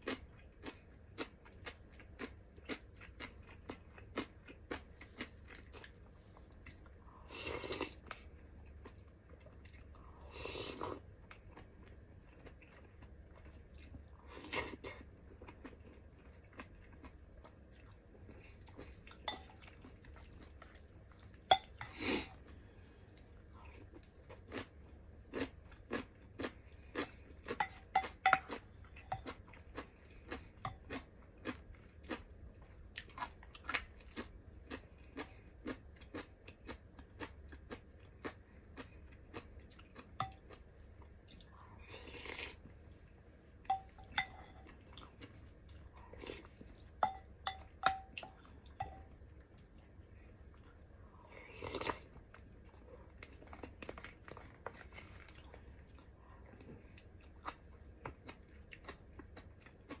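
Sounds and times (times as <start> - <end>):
wet chewing sounds: 0.0 - 42.8, 43.7 - 60.0
utensil clinking on bowl: 19.3 - 19.6, 21.5 - 21.9, 27.6 - 29.3, 43.7 - 44.7, 47.0 - 49.1.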